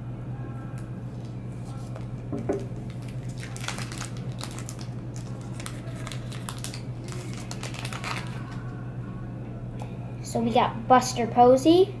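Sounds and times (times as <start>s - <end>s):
foil wrapper crinkling: 1.7s - 8.7s.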